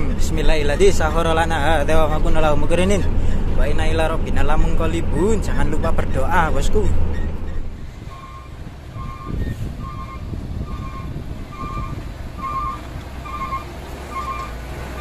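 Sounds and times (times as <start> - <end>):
diesel truck engine running: 0.0 - 15.0
reversing alarm beeping: 8.1 - 14.6.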